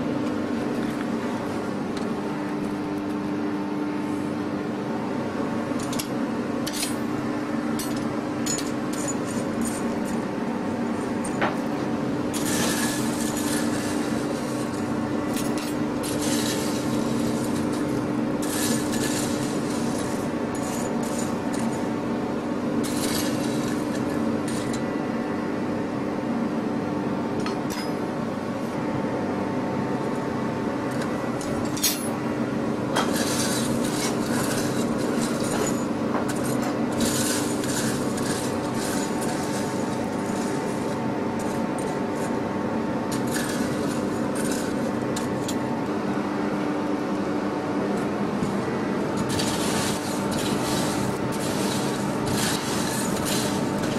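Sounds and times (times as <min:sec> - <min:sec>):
forge air blower hum: 0:00.0 - 0:53.9
iron bars and tongs clinking: 0:27.4 - 0:28.0, 0:31.4 - 0:32.2.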